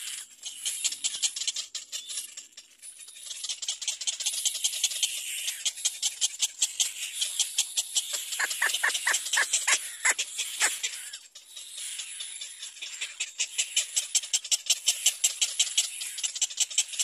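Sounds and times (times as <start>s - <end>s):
chicks begging cries: 8.0s - 14.0s.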